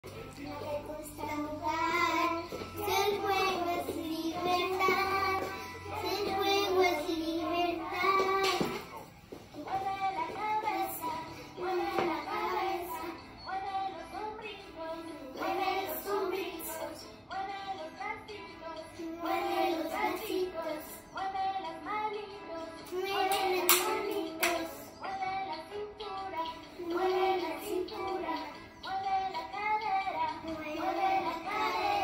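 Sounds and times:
child singing: 0.1 - 32.0
hand clap: 22.9 - 24.8.

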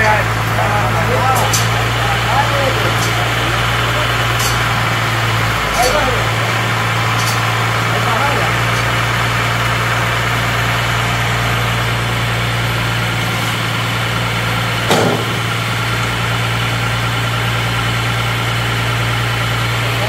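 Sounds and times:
tractor diesel engine idling: 0.0 - 20.0
metal clank: 1.3 - 1.9, 2.8 - 3.5, 4.2 - 7.9, 14.8 - 15.8.

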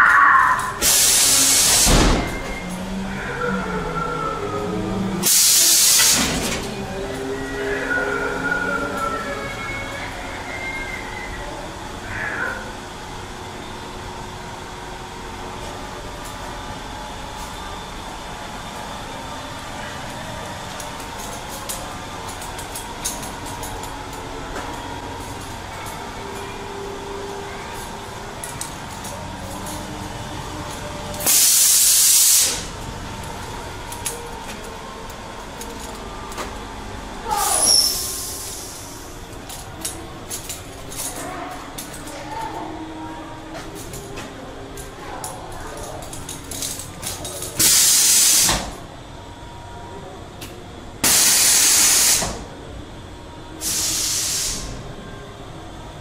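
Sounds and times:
droning hum with hiss: 0.0 - 56.0
hissing blasts of gas: 0.8 - 2.2, 5.2 - 6.4, 31.3 - 32.7, 37.6 - 39.1, 47.6 - 48.5, 51.0 - 52.3, 53.6 - 54.8.

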